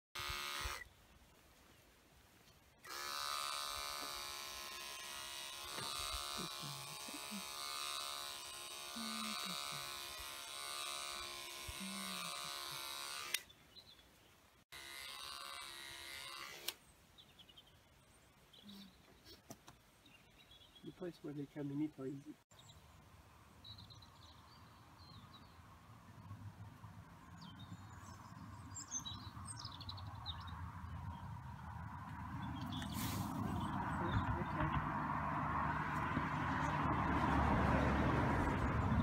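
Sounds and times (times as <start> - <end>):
electric clippers buzzing: 0.2 - 0.9, 2.8 - 13.5, 14.7 - 16.8.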